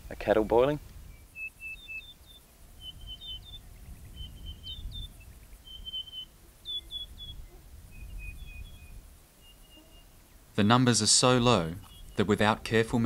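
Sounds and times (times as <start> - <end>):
parrot high whistled calls: 4.2 - 10.1.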